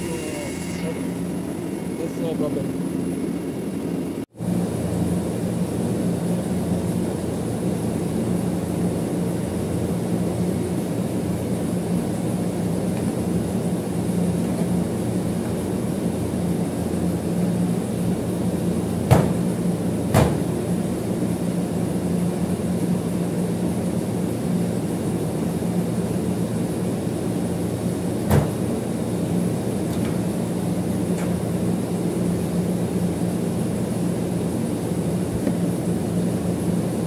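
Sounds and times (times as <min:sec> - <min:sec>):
faint high whine: 0:00.0 - 0:09.0
machinery hum: 0:00.0 - 0:37.0.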